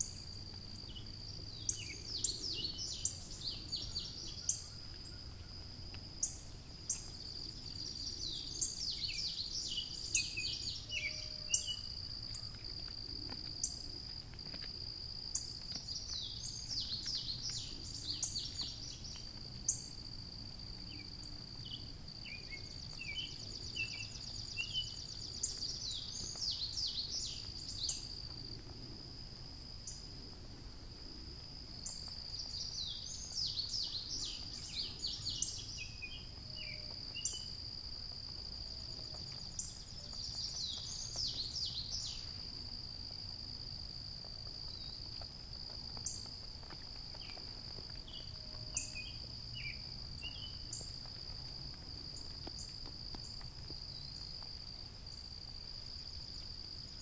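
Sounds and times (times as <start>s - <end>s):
insects droning: 0.0s - 57.0s
bird song whistles: 7.9s - 11.9s.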